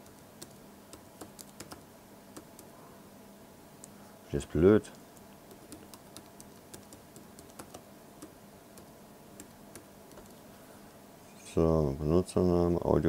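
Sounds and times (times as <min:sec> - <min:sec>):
keyboard keystrokes: 0:00.0 - 0:01.8, 0:05.5 - 0:10.4.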